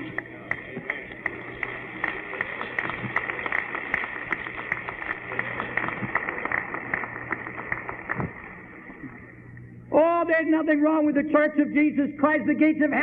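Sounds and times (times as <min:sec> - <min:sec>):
crowd clapping: 0:00.0 - 0:09.3.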